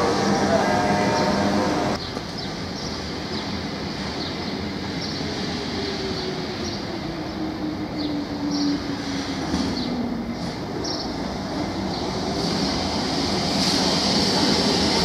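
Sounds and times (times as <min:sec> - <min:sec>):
tram motor whine: 0:00.0 - 0:02.0
electric tram rumbling on rails: 0:00.0 - 0:15.0.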